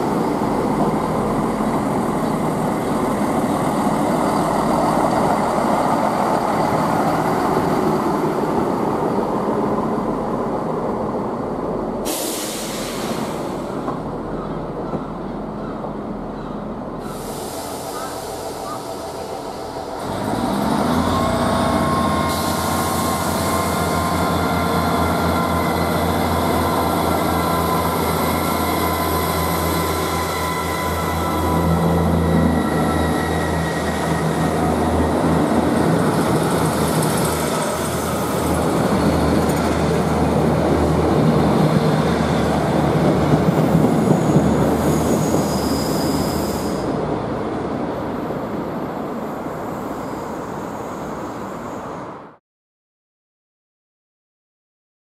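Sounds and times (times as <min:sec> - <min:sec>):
diesel train engines throbbing: 0:00.0 - 0:49.2.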